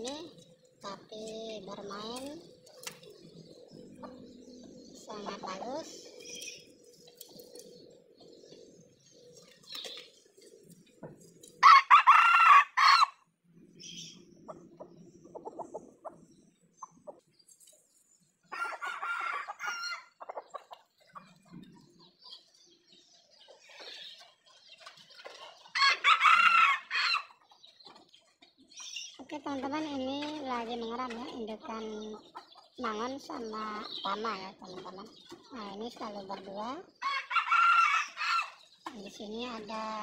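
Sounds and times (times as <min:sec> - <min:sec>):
roosters crowing: 0:11.5 - 0:13.4, 0:18.4 - 0:20.6, 0:25.6 - 0:27.6, 0:37.0 - 0:38.8.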